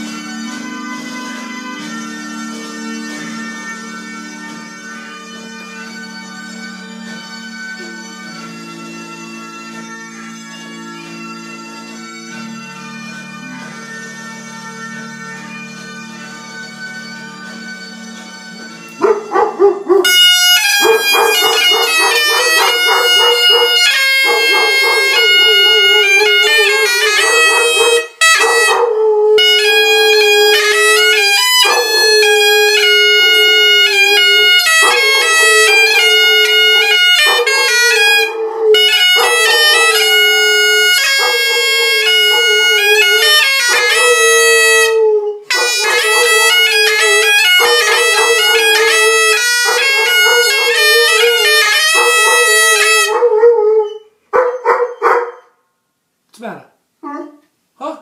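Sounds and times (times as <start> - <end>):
bagpipe tune over drone: 0.0 - 54.0
dog howling: 19.0 - 20.1, 20.8 - 30.8, 31.4 - 55.5, 57.0 - 57.4.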